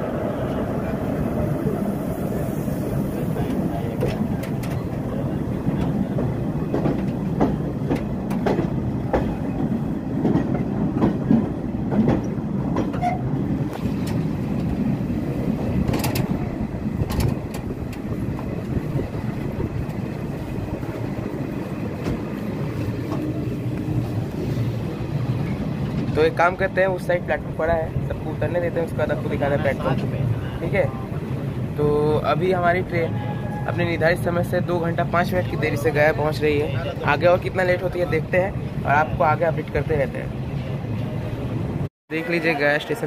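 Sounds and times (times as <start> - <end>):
train rumbling: 0.0 - 43.0
wheels clacking over rail joints: 3.4 - 26.4.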